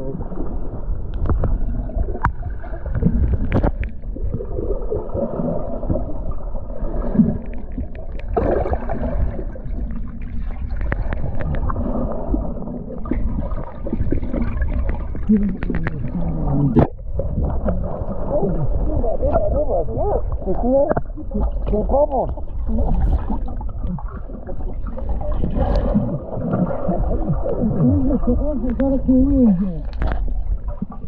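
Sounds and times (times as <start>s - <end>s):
muffled underwater swimming: 0.0s - 31.0s
water gurgling: 0.0s - 31.0s
sharp underwater clicks: 2.2s - 4.0s, 10.3s - 11.8s, 14.3s - 17.5s, 29.8s - 31.0s.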